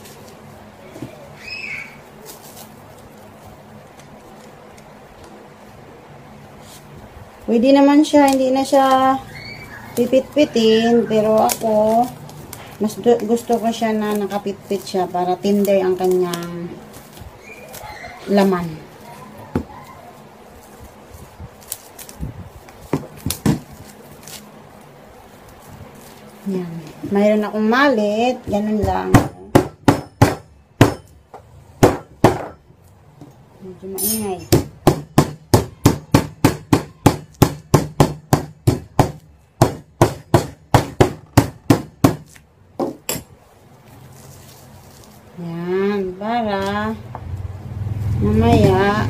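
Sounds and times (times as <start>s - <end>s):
plastic cling wrap crinkling: 0.0s - 5.8s, 6.6s - 28.8s, 43.5s - 45.8s
metal mallet pounding meat: 28.8s - 31.2s, 31.8s - 32.6s, 34.4s - 43.2s.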